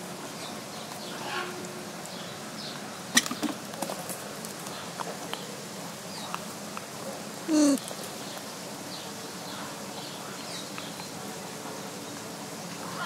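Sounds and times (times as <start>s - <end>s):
lemurs calling: 7.5s - 7.9s.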